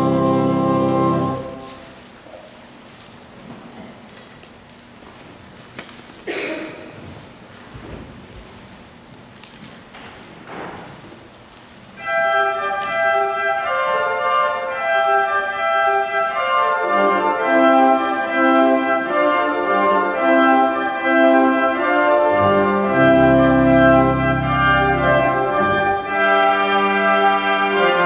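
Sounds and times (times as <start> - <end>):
deep organ pedal bass: 0.0 - 1.6, 16.8 - 28.0
church organ playing: 0.0 - 2.1, 12.0 - 28.0.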